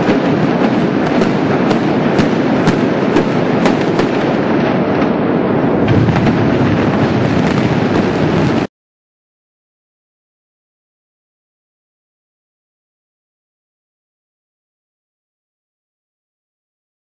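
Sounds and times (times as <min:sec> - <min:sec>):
demolition explosive charges firing: 0:00.0 - 0:08.7.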